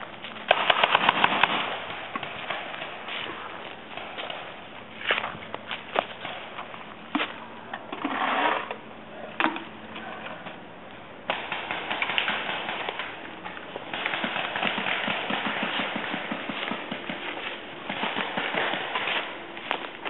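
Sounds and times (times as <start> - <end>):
paintball markers firing: 11.2 - 19.4.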